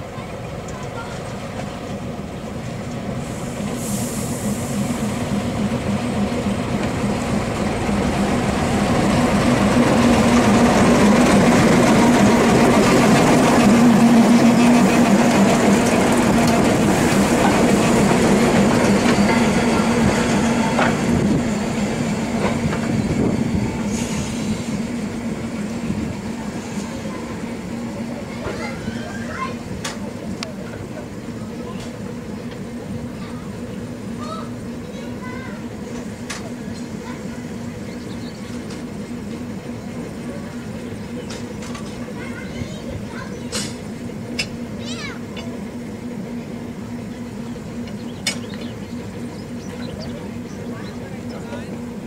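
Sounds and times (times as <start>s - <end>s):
diesel locomotive engine drone: 0.0s - 52.0s
wheels clicking on track: 5.5s - 21.2s, 47.1s - 52.0s.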